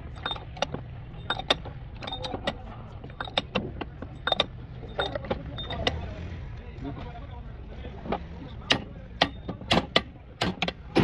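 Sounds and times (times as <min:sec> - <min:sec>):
metal tools clinking: 0:00.0 - 0:06.0.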